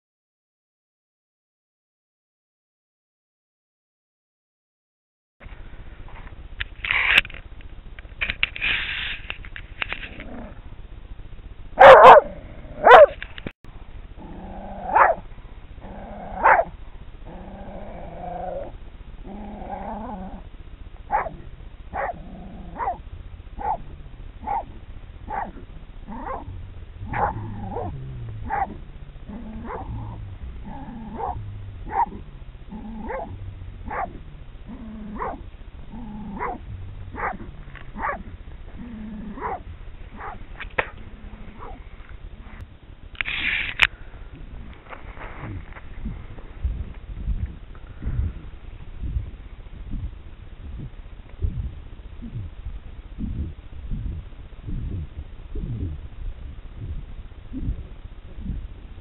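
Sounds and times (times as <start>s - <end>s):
dog barking: 11.8s - 13.2s, 14.9s - 15.2s, 16.4s - 16.7s, 21.1s - 23.0s, 23.6s - 23.8s, 24.4s - 26.5s, 27.1s - 28.8s, 29.6s - 30.0s, 31.1s - 32.2s, 33.0s - 34.2s, 35.1s - 35.4s, 36.4s - 38.3s, 39.3s - 40.4s, 41.6s - 41.8s.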